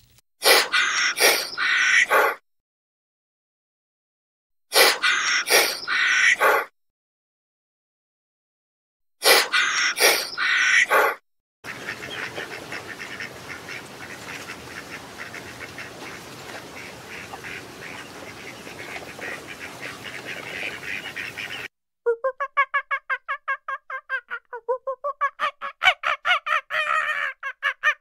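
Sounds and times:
harsh bird calls: 0.7 - 2.4, 5.0 - 6.7, 9.5 - 11.1, 11.7 - 21.7
flock of birds chattering: 11.7 - 21.7.

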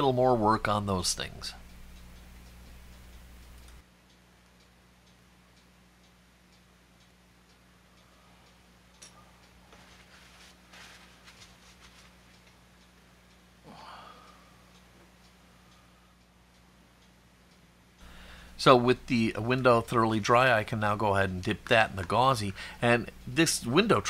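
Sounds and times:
soft ticking: 0.0 - 24.0
paper towel rustling: 9.8 - 12.2.

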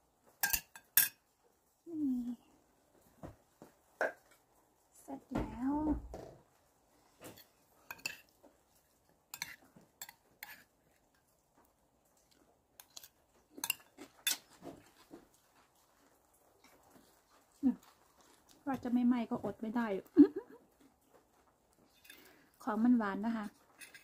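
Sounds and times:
cutlery clinking on ceramic plate: 0.4 - 1.2, 7.4 - 8.4, 9.3 - 10.7, 12.8 - 14.6, 23.8 - 24.0.

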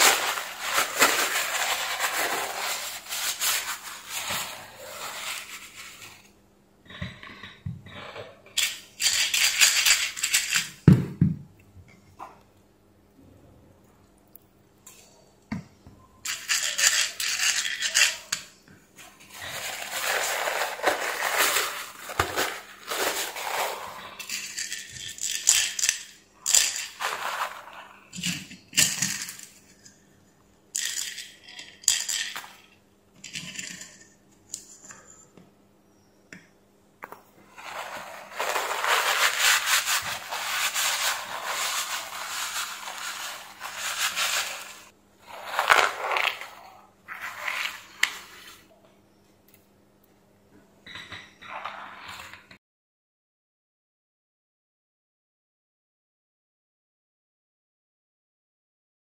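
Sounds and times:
paper towel rustling and crumpling: 0.0 - 6.3, 19.0 - 25.3, 26.5 - 28.4, 37.5 - 48.7.

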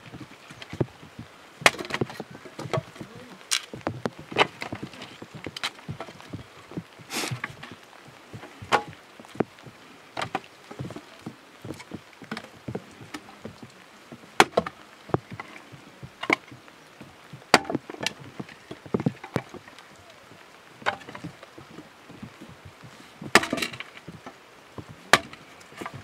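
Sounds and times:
wood knocking on wood: 0.0 - 7.8, 8.4 - 9.6, 10.2 - 16.6, 17.4 - 20.2, 20.8 - 26.0
axe chopping wood: 1.6 - 2.1, 14.4 - 14.7, 17.5 - 17.8, 23.3 - 23.7, 25.1 - 25.4
wood splintering crack: 1.6 - 7.8, 14.4 - 16.6, 17.4 - 20.1, 23.3 - 24.4, 25.0 - 26.0.

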